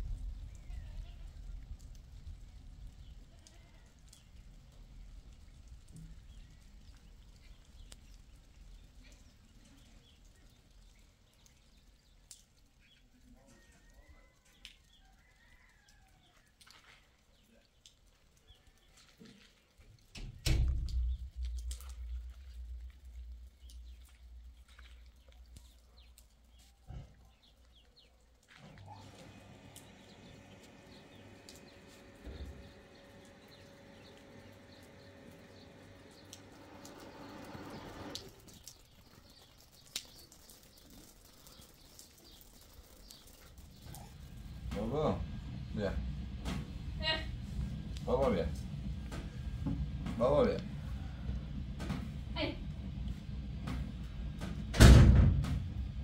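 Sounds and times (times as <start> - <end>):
low steady hum: 28.6 - 38.4, 43.6 - 56.0.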